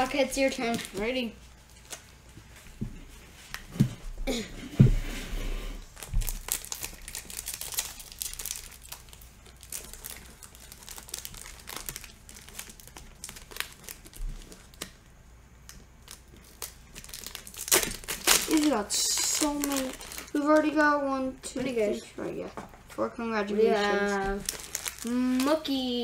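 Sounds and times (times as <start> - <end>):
foil wrapper crinkling and tearing: 0.0 - 2.3, 5.8 - 15.0, 15.6 - 20.8, 24.0 - 26.0.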